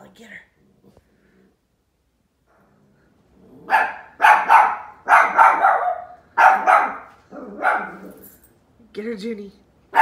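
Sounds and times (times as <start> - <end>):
dog barking: 3.7 - 8.2.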